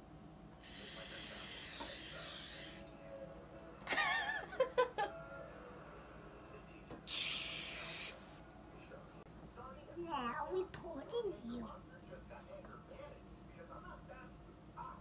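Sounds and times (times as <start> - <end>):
aerosol spray hissing: 0.6 - 2.8, 7.1 - 8.2.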